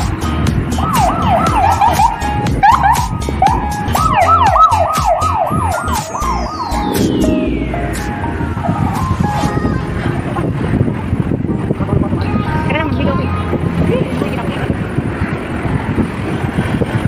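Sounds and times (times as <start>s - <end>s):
dance music beat: 0.0s - 9.7s
siren-like yelping: 0.8s - 9.8s
falling whistle-like sweep: 4.0s - 9.2s.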